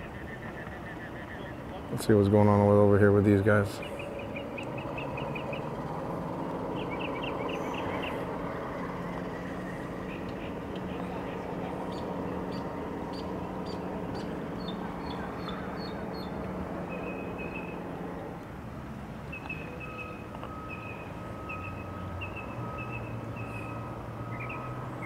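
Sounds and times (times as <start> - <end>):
boat engine humming: 0.0 - 25.0
bird chirping: 3.6 - 6.0, 6.6 - 8.3, 10.0 - 17.8, 19.3 - 25.0.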